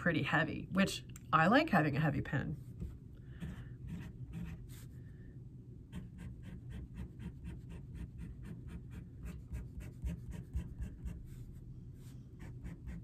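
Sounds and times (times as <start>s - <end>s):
pen nib scratching on paper: 5.9s - 11.4s, 12.4s - 13.0s.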